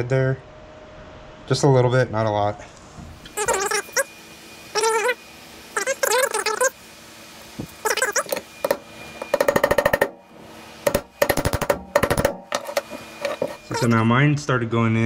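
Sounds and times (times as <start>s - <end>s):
rubber boot squeaking and chattering: 3.4s - 4.1s, 4.8s - 5.2s, 5.8s - 6.8s, 7.8s - 8.4s, 13.3s - 14.0s.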